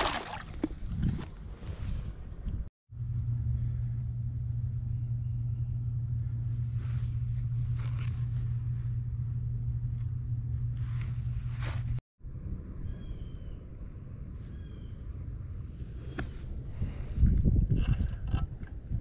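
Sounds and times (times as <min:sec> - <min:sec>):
low motor-like rumble: 0:02.4 - 0:19.0
faint high whine: 0:02.9 - 0:14.6
brief rustling or scraping: 0:10.8 - 0:12.0.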